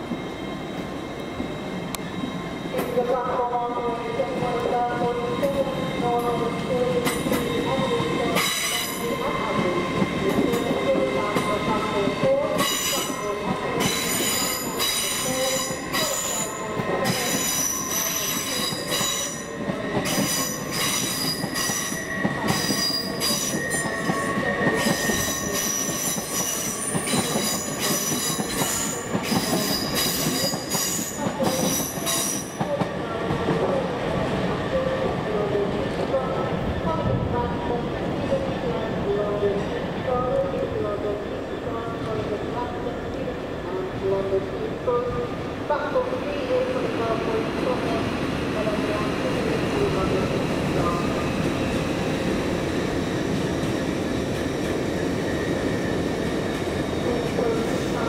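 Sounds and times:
train rumbling: 0.0s - 58.0s
metallic wheel squeals: 20.3s - 32.6s.

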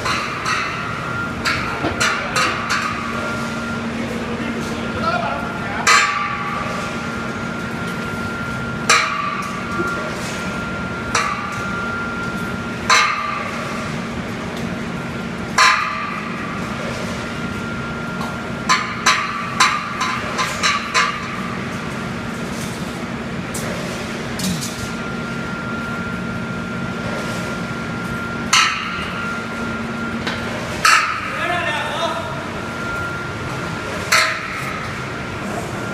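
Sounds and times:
welding machine hum: 0.0s - 35.9s.

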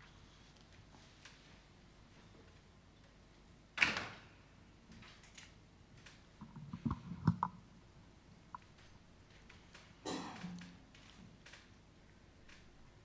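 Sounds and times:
microphone handling noise: 6.4s - 7.6s
microphone knocks and clicks: 6.4s - 7.6s.

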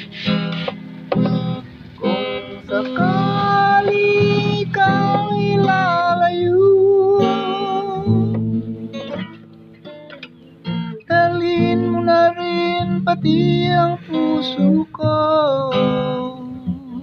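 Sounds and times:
strummed acoustic guitar: 0.0s - 17.0s
person singing: 2.0s - 9.0s, 11.0s - 17.0s.

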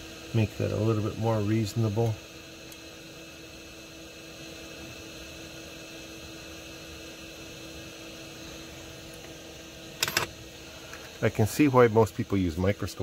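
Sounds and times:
electrical hum: 0.0s - 13.0s
even hiss: 3.6s - 13.0s.

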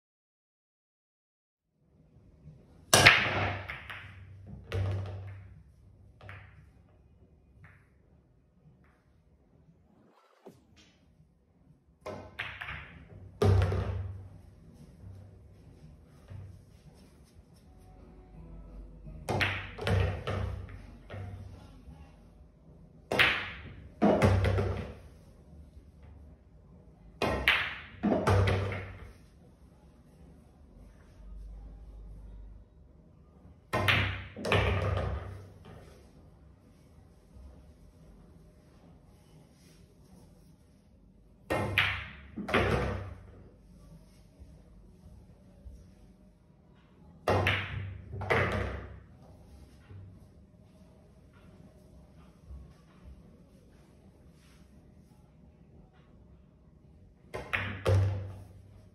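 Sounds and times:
cue ball cracking into pool balls: 3.0s - 5.5s, 12.1s - 14.2s
pool balls knocking together: 3.0s - 5.6s, 12.0s - 14.3s, 19.2s - 21.4s, 23.1s - 25.0s, 33.7s - 35.4s, 41.5s - 43.3s, 47.3s - 49.0s, 57.3s - 58.5s
cue striking ball: 12.1s - 14.2s, 19.2s - 20.8s
background music: 17.6s - 21.1s.

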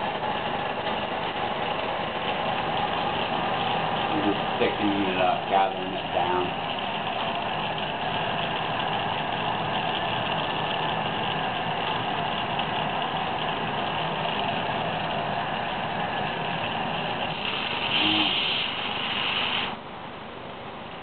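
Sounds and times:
torch flame hissing: 16.1s - 19.8s.

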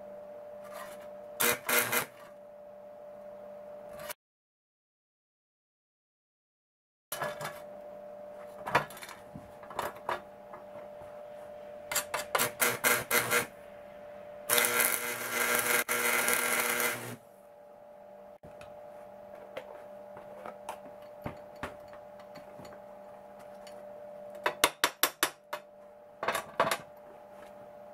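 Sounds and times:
welding arc crackling: 1.4s - 2.2s, 12.4s - 13.5s, 14.5s - 17.2s
transformer hum: 11.8s - 18.4s.

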